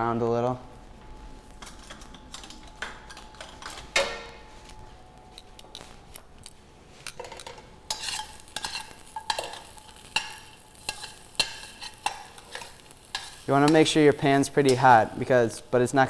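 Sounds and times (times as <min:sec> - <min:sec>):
metal tongs clinking on a pan: 0:07.1 - 0:14.0, 0:14.6 - 0:15.0.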